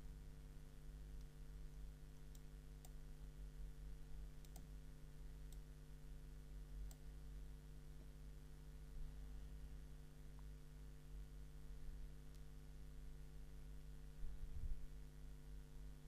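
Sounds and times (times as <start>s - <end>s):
steady low hum: 0.0s - 16.0s
soft clicks: 2.2s - 3.0s, 4.4s - 4.7s, 5.5s - 5.7s, 6.8s - 7.1s, 12.2s - 12.6s.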